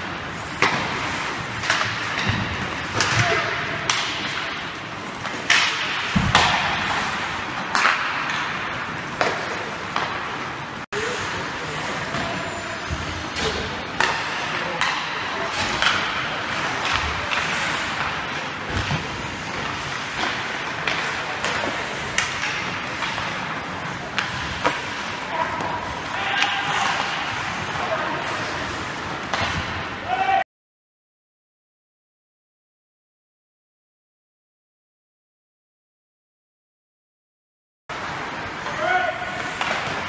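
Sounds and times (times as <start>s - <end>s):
hockey sticks and pucks clacking: 0.0s - 30.4s, 37.9s - 40.0s
skates scraping ice: 0.0s - 30.4s.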